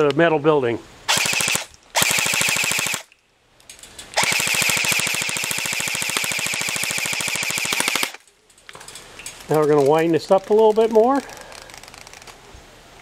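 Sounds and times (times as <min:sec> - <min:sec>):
airsoft gun firing bursts: 0:01.1 - 0:03.1, 0:04.2 - 0:08.2.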